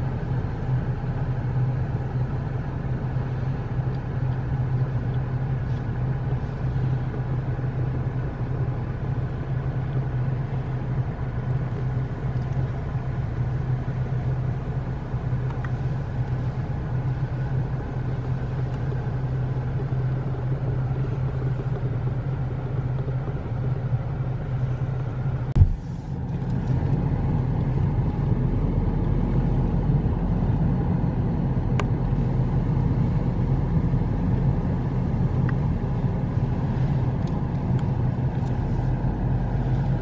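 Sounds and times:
car road noise from inside: 0.0 - 40.0
short knock: 25.6 - 25.8.

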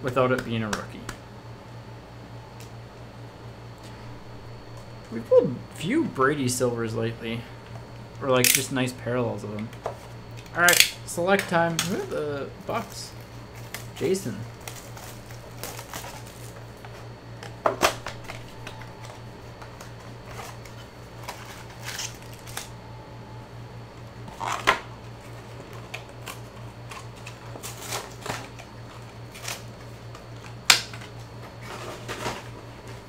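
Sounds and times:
foil packs rustling and crinkling: 12.7 - 22.8, 24.2 - 33.0.

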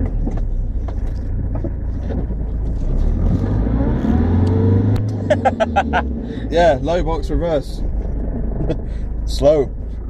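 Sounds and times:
diesel engine revving: 2.2 - 9.7.

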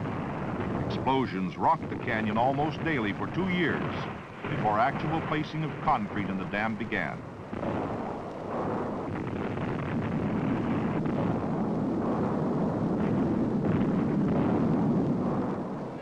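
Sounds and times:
blast rumble and falling rock: 0.0 - 16.0.

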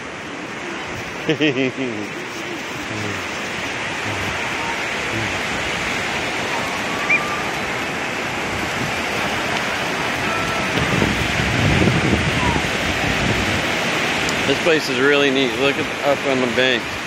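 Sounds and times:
ocean surf breaking on beach: 0.0 - 17.0
faint distant high call: 6.4 - 7.6, 10.2 - 11.1.

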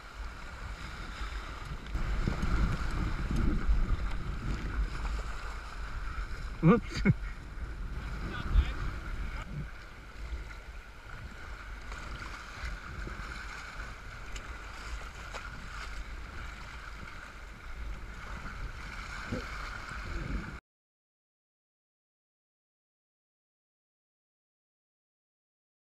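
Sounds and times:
water splashing along hull: 0.0 - 20.6
wind buffeting microphone: 0.0 - 20.6.

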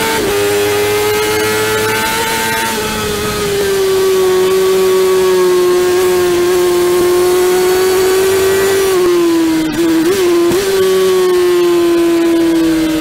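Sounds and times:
motorcycle engine at high revs: 0.0 - 13.0
wind rush: 2.0 - 5.2.

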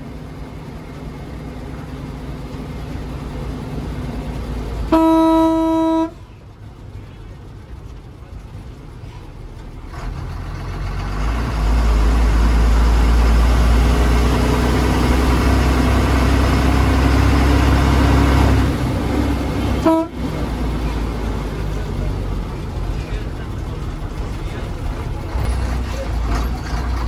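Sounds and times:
bus diesel engine under load: 0.0 - 27.0
bus horn toot: 4.8 - 6.3, 19.7 - 20.3.

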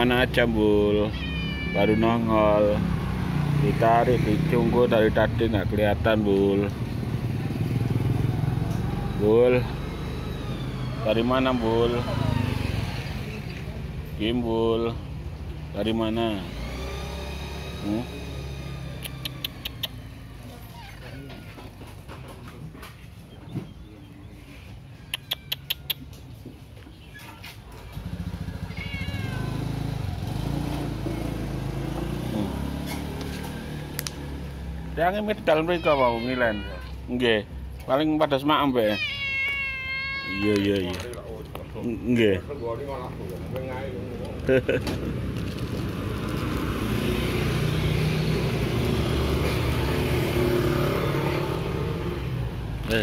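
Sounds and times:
cat meowing: 0.9 - 2.7, 28.4 - 29.9, 35.5 - 37.2, 38.7 - 41.1
engine running close by: 2.2 - 20.7, 27.7 - 35.5, 40.9 - 53.0
quick sharp clicks: 19.0 - 20.1.

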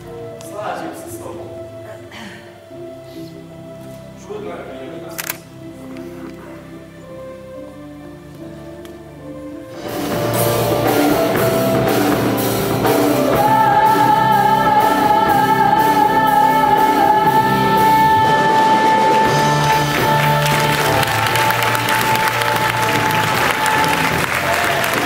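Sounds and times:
person singing with instruments: 9.7 - 25.0.

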